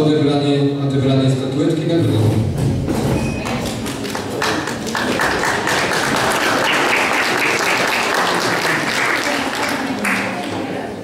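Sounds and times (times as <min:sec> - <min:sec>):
audience applauding: 0:03.4 - 0:10.7.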